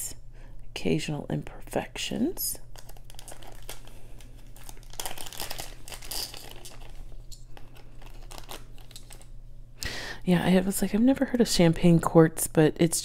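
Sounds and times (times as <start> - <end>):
plastic bag crinkling: 2.6 - 9.4.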